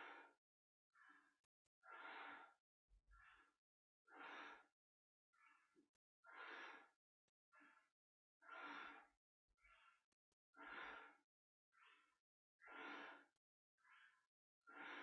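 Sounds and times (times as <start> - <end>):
woman breathing deeply: 0.0 - 0.4, 1.9 - 2.6, 4.1 - 4.7, 6.3 - 6.9, 7.6 - 10.0, 10.6 - 11.2, 11.8 - 14.1, 14.7 - 15.0.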